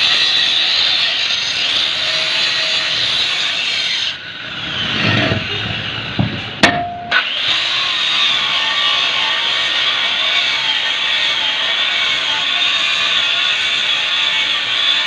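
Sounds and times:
angle grinder cutting steel: 0.0s - 15.0s
metal knocks: 6.2s - 7.2s
short metallic ring: 6.6s - 7.3s.

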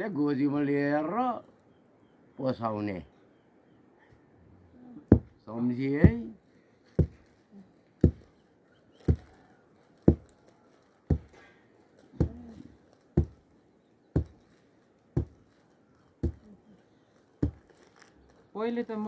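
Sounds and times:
wooden mallet pounding grain: 5.1s - 5.4s, 6.0s - 6.3s, 7.0s - 7.2s, 8.0s - 8.3s, 9.0s - 9.3s, 10.1s - 10.3s, 11.1s - 11.4s, 12.2s - 12.6s, 13.2s - 13.4s, 14.2s - 14.4s, 15.2s - 15.5s, 16.2s - 16.4s, 17.4s - 17.6s.

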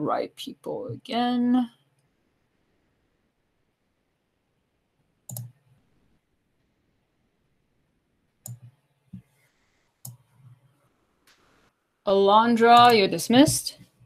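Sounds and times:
computer mouse clicks: 5.3s - 5.6s, 8.4s - 9.3s, 10.0s - 10.6s.

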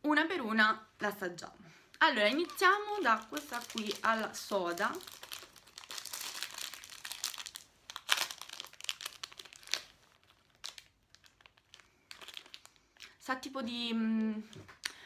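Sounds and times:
candy wrapper crinkling and tearing: 2.0s - 13.2s.

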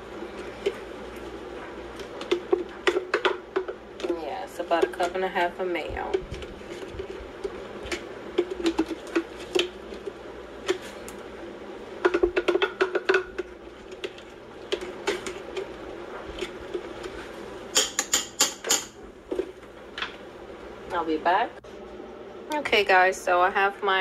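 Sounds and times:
utensils clinking against metal pot: 17.7s - 19.0s.

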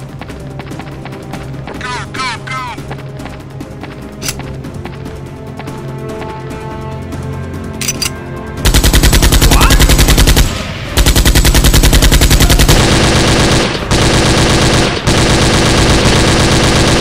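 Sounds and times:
background music: 0.0s - 17.0s
machine-gun fire: 8.6s - 17.0s.

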